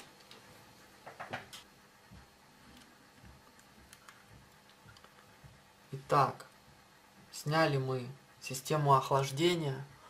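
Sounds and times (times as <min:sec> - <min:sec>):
light clicks and knocks: 0:00.2 - 0:05.6.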